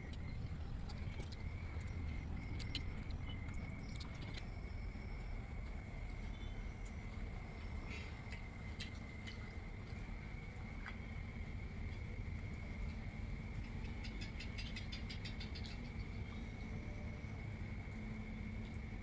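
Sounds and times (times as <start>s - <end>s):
low rumble: 0.0s - 7.8s.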